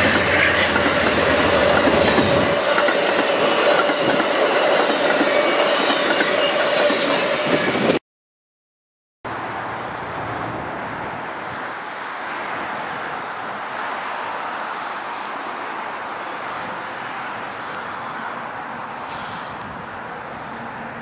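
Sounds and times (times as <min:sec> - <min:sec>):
distant road traffic hiss: 0:09.3 - 0:21.0.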